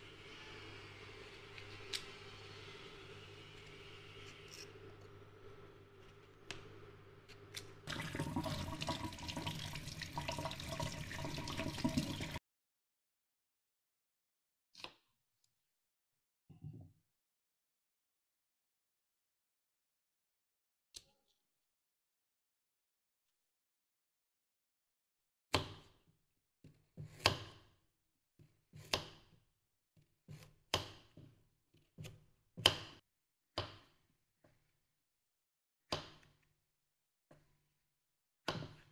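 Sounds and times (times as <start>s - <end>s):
water running into sink: 7.9s - 12.4s.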